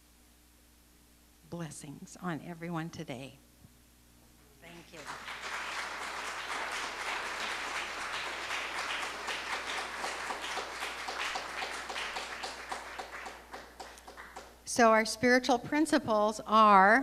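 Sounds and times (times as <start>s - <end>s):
congregation applauding: 4.7s - 14.7s.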